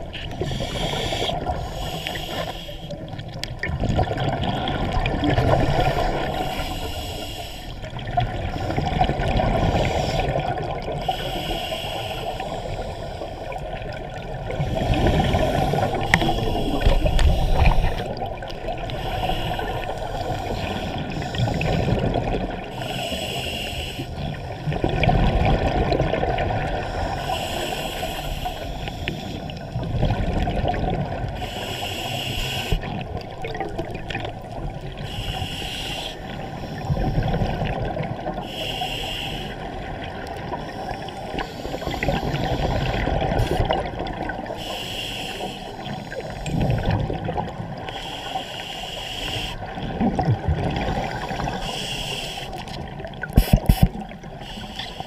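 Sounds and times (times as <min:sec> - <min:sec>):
exhale bubbling underwater: 0:00.0 - 0:07.2, 0:07.8 - 0:23.5, 0:24.1 - 0:38.8, 0:39.6 - 0:44.7, 0:45.7 - 0:48.2, 0:49.5 - 0:55.0
low water noise: 0:00.0 - 0:55.0
regulator inhale hiss: 0:00.3 - 0:03.2, 0:05.7 - 0:07.9, 0:09.8 - 0:10.4, 0:11.0 - 0:13.6, 0:14.6 - 0:22.1, 0:22.7 - 0:24.4, 0:26.8 - 0:29.7, 0:31.3 - 0:33.0, 0:34.9 - 0:37.6, 0:38.4 - 0:39.8, 0:40.6 - 0:43.7, 0:44.5 - 0:46.6, 0:47.8 - 0:49.7, 0:50.8 - 0:52.7, 0:53.4 - 0:55.0.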